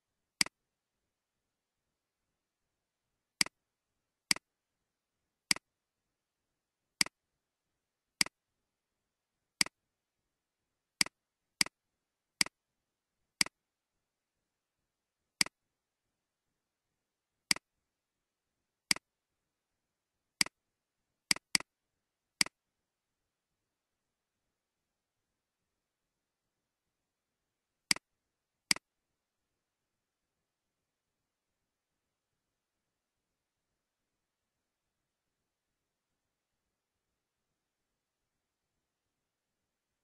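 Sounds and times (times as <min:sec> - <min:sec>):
computer mouse clicks: 0:08.2 - 0:08.4, 0:21.3 - 0:21.7, 0:22.4 - 0:22.6, 0:28.7 - 0:28.9.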